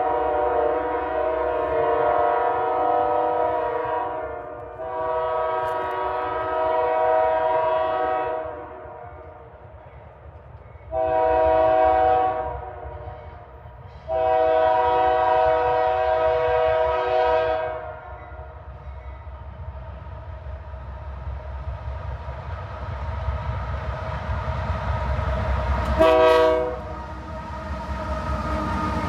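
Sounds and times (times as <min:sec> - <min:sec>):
locomotive air horn chord: 0:00.0 - 0:08.8, 0:10.9 - 0:13.0, 0:14.1 - 0:17.9, 0:26.0 - 0:26.9
train rumble: 0:00.0 - 0:29.0.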